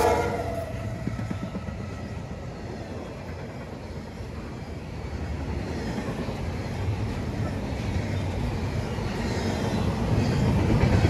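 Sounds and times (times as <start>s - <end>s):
locomotive horn: 0.0s - 0.8s
train wheels rumbling on rail: 0.0s - 11.0s.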